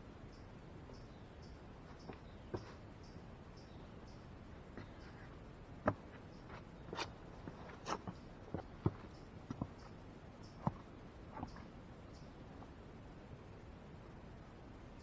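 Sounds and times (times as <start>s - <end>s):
footsteps on rocks: 4.8s - 9.9s.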